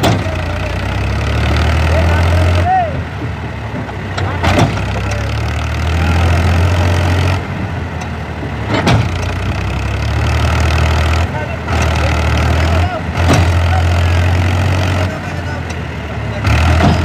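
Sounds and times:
sharp knocks: 0.0 - 0.4, 4.2 - 5.1, 8.7 - 9.4, 13.2 - 13.7, 16.6 - 17.0
tractor diesel engine idling: 0.0 - 17.0.

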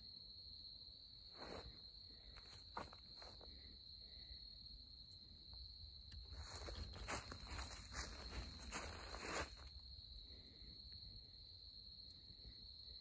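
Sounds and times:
high insect trill: 0.0 - 13.0
footsteps crunching on dry leaves: 6.4 - 9.7.

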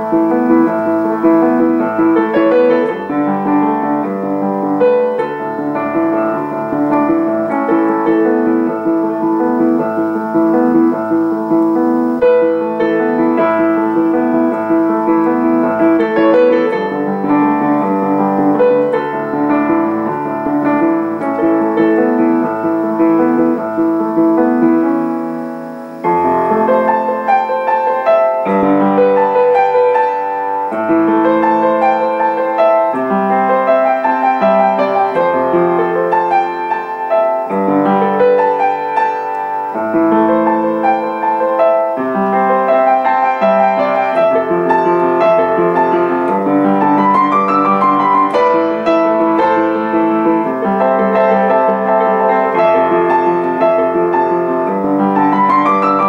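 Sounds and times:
upright piano solo: 0.0 - 56.0.

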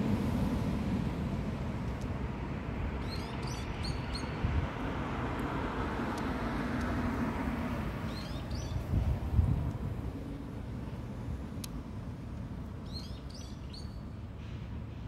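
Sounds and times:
bird chirping: 3.0 - 4.4, 8.1 - 8.8, 12.8 - 14.1.

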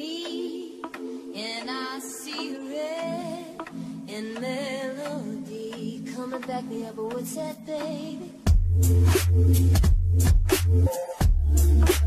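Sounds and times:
steady drum beat: 8.5 - 12.0
deep sustained bass: 8.7 - 12.0.

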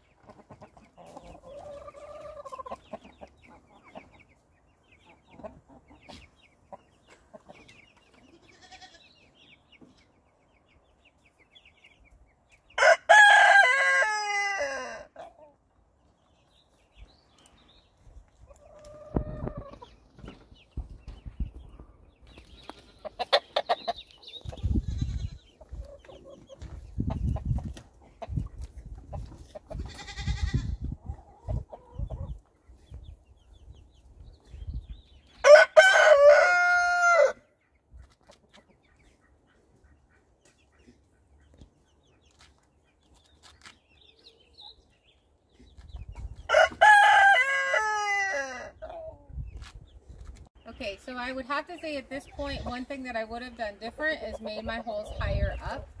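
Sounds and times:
chickens clucking: 0.0 - 56.0
rooster crowing: 12.8 - 15.1, 35.4 - 37.4, 46.5 - 48.7.

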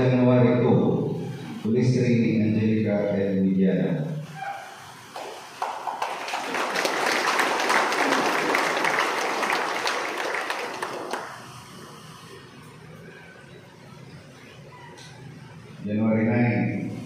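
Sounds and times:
audience applause: 5.2 - 12.0.

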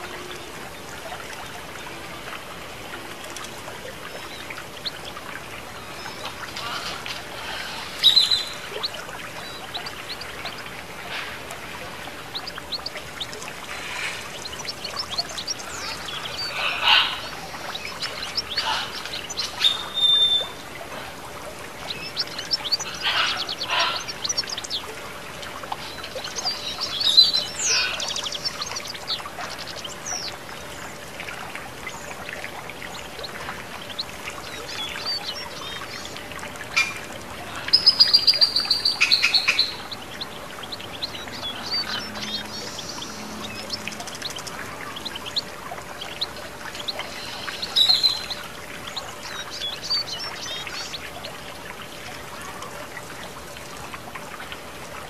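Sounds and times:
water trickling down fountain: 0.0 - 55.0
birds chirping and whistling: 7.4 - 11.3, 12.3 - 20.6, 21.9 - 24.9, 25.8 - 30.4, 37.7 - 51.0.

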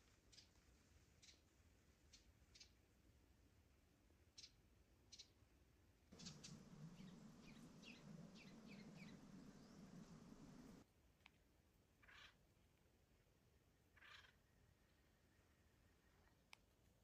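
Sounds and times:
high chirping calls: 6.2 - 10.8
steady low hum: 6.2 - 10.8.

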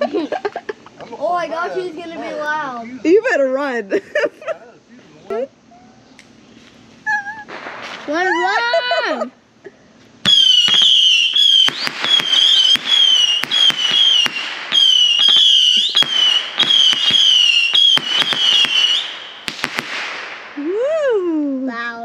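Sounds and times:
whistling firework rockets: 7.3 - 8.6, 10.2 - 21.4
firework cracks: 7.4 - 8.6, 10.2 - 20.8
firework pops: 7.5 - 8.2, 10.2 - 20.4.

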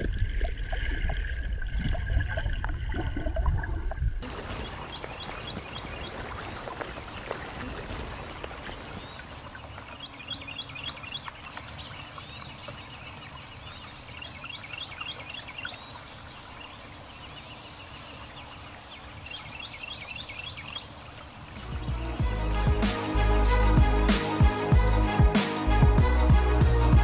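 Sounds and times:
small birds chirping trills: 4.2 - 22.0.

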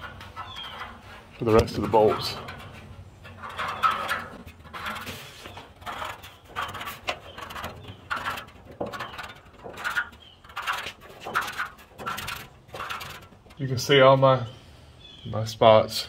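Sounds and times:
marking tool scratching on steel: 0.0 - 13.4.

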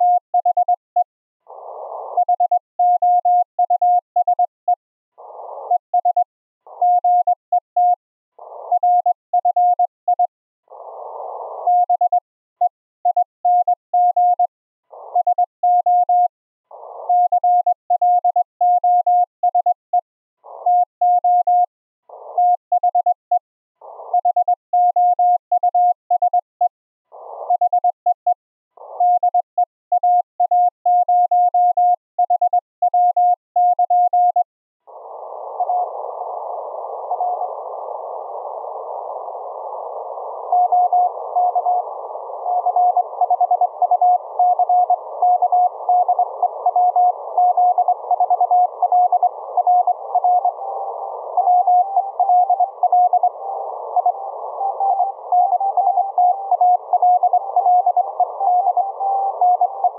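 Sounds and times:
receiver hiss: 34.9 - 59.9
morse code tone: 40.4 - 59.9.

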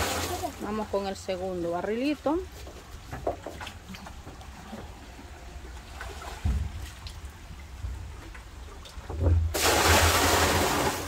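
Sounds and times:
water gushing into a barrel: 0.0 - 0.9, 9.1 - 11.0.

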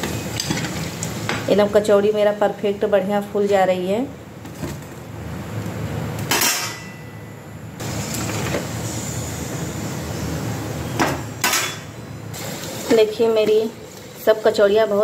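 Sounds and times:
food sizzling in hot oil: 7.8 - 14.6.

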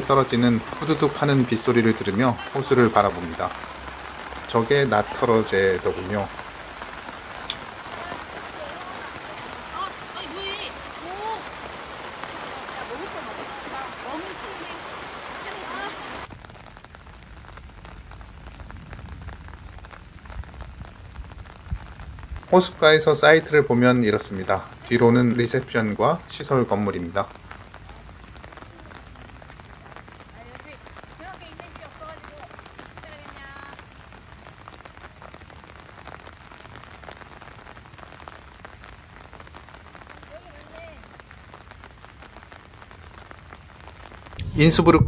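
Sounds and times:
heavy rain pattering: 0.0 - 45.0
low rumble: 44.4 - 45.0.

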